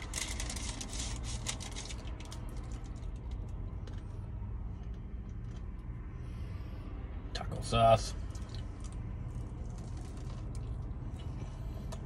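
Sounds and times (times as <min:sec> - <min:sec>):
plastic packet crinkling: 0:00.0 - 0:03.4.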